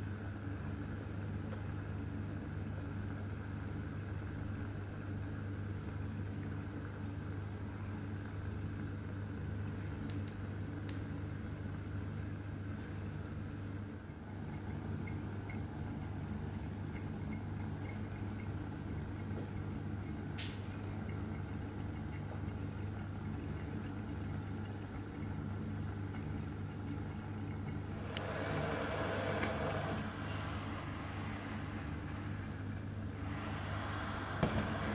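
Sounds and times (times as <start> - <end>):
stove burning low rumble: 0.0 - 34.9
flame flaring rush: 28.0 - 32.4.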